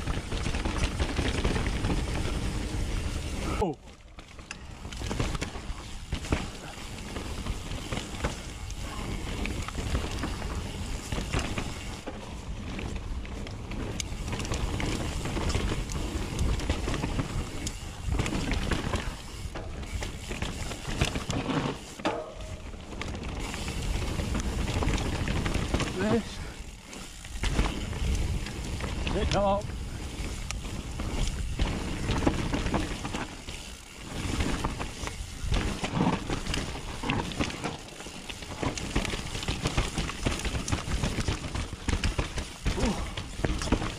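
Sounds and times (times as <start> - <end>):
bike rattling and knocking: 0.0 - 43.9
tyres rushing over dirt and rock: 0.0 - 43.9.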